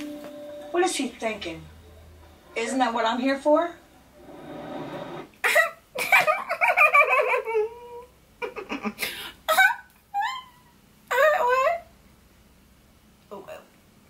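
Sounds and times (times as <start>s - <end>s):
woman exclaiming and laughing: 9.5s - 11.8s.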